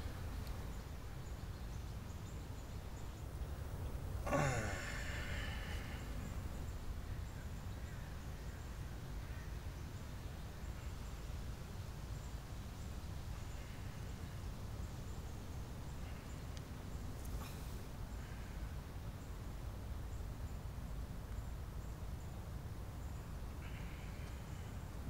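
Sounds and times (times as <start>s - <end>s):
low background rumble: 0.0s - 20.4s
man sighing: 4.2s - 6.4s.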